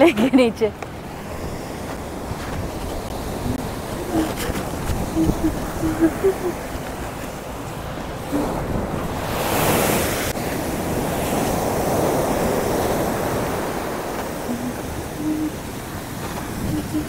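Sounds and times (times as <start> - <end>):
sea waves breaking: 0.2 - 17.0
steady rush of surf: 0.9 - 17.0.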